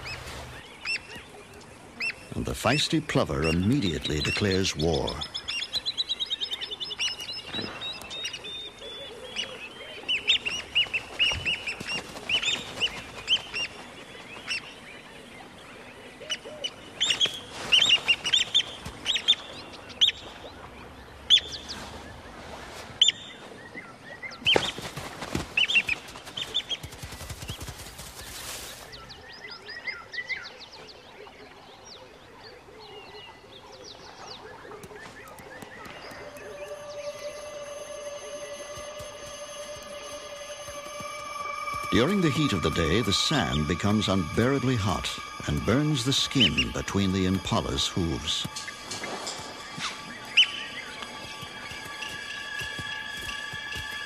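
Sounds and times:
bird alarm calls: 33.1 - 54.0.

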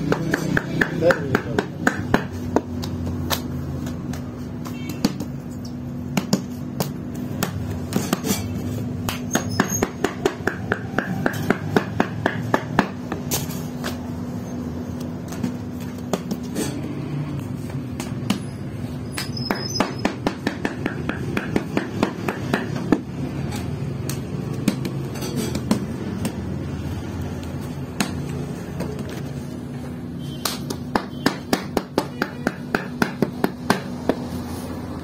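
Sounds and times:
hands slapping dough on metal: 0.0 - 5.5, 6.1 - 14.0, 20.1 - 26.4, 30.4 - 34.3.

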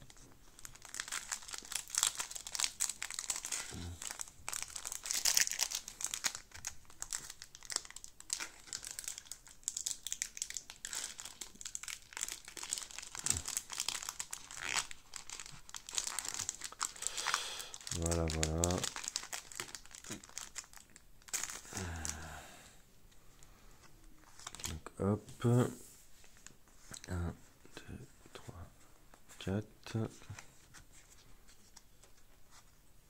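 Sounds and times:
foil wrapper crinkling: 0.0 - 22.3.

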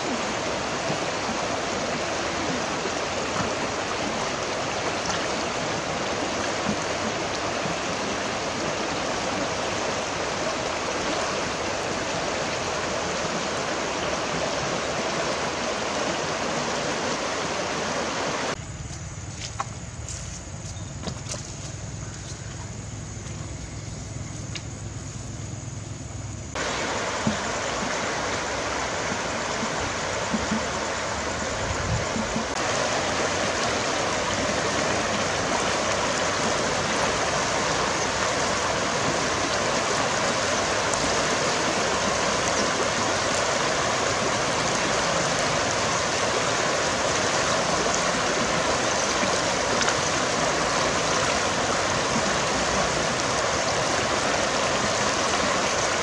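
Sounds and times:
river flowing over stones: 0.0 - 18.6, 26.5 - 56.0.

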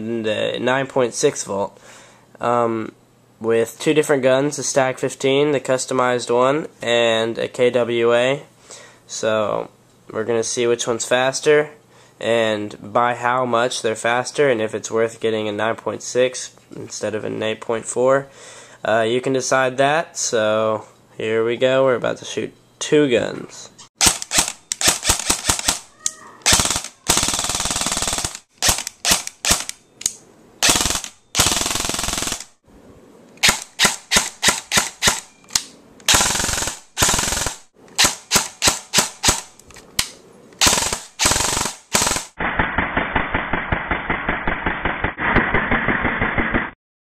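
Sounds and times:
airsoft guns firing: 24.0 - 29.7, 30.6 - 32.5, 36.1 - 39.5, 40.6 - 46.7.

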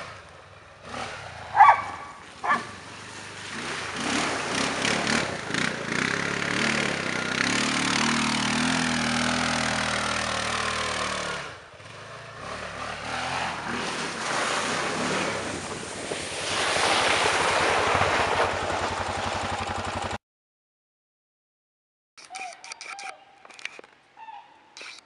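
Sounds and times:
atv engine revving: 0.0 - 15.9, 17.2 - 20.2.

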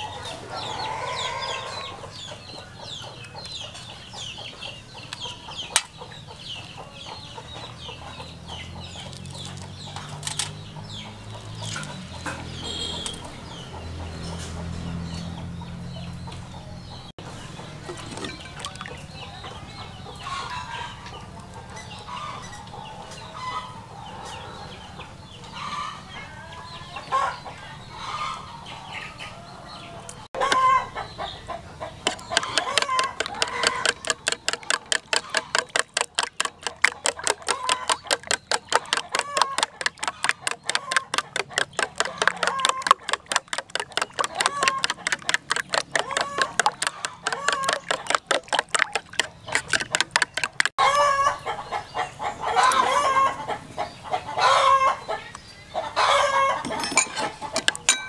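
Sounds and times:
chickens clucking: 0.0 - 58.0
metal utensil beating egg in bowl: 32.0 - 50.8, 56.6 - 58.0.

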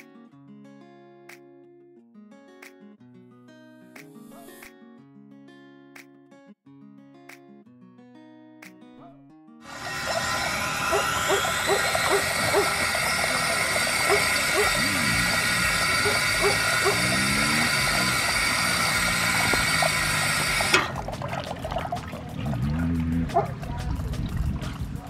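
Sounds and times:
dogs lapping water: 9.7 - 25.0
water running and splashing: 9.7 - 25.0.

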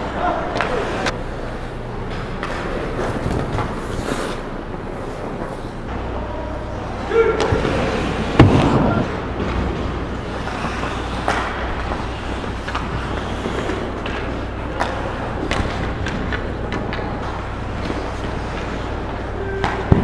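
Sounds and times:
skates scraping on ice: 0.1 - 5.8, 6.8 - 20.0
hockey sticks and puck knocking: 7.2 - 20.0.

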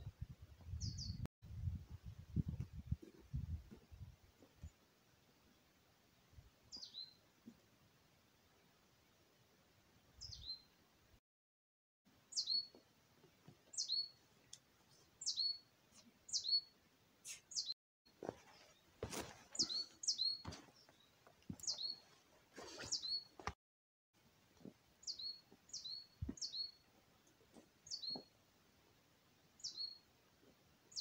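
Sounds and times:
footsteps on forest floor: 18.2 - 23.6.

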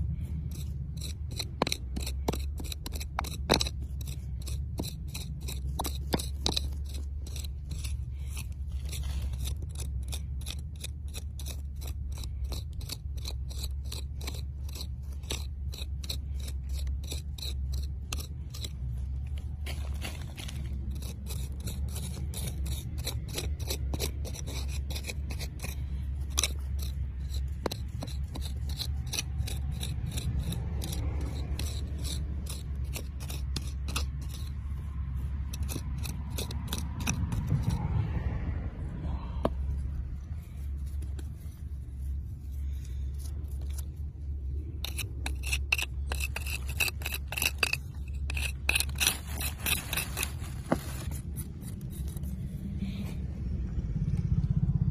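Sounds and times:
low rumble: 0.0 - 10.4, 34.1 - 54.9
soil scraping: 0.0 - 38.2, 39.4 - 53.2.

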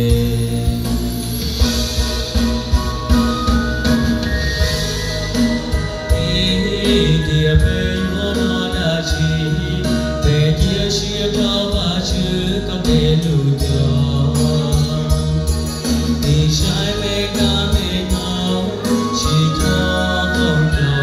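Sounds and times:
man singing into a microphone: 0.0 - 1.3, 5.8 - 21.0
backing track with bass and beat: 0.0 - 21.0.

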